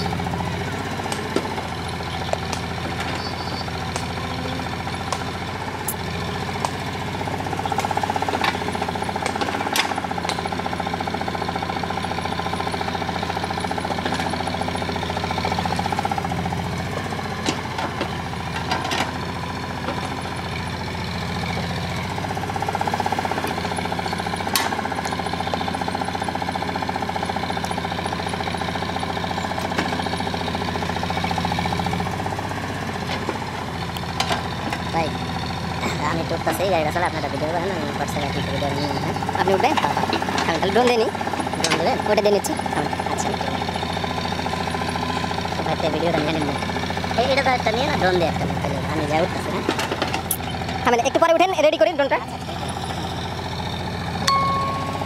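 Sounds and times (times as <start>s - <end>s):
excavator diesel engine: 0.0s - 55.0s.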